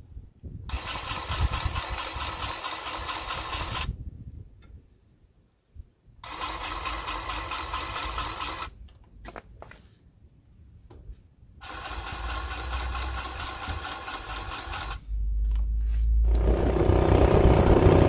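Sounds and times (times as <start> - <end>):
grease gun motor buzzing: 0.7 - 3.9, 6.2 - 8.7, 11.6 - 15.0, 16.3 - 18.0.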